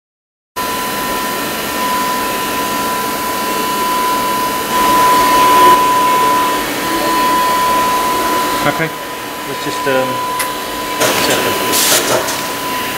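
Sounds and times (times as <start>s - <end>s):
machine whirring hum and whine: 0.6s - 12.9s.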